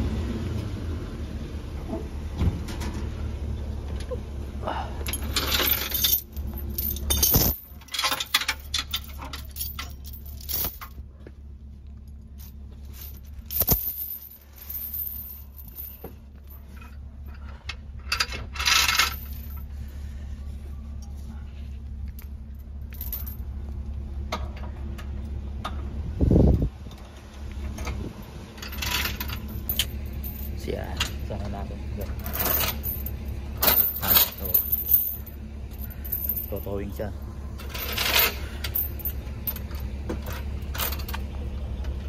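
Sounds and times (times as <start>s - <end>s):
tow truck engine running: 0.0s - 42.0s
metal chains clinking and rattling: 5.0s - 11.1s, 12.0s - 19.9s, 22.0s - 23.6s, 27.8s - 41.4s.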